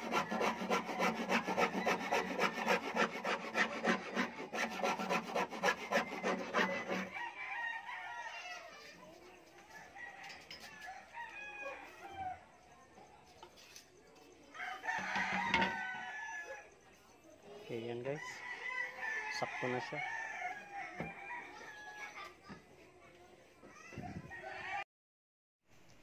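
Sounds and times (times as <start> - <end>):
rooster crowing: 0.0 - 2.9, 5.7 - 8.9, 9.7 - 12.5, 14.5 - 16.7, 18.1 - 22.1
hand file rasping wood: 0.0 - 7.1.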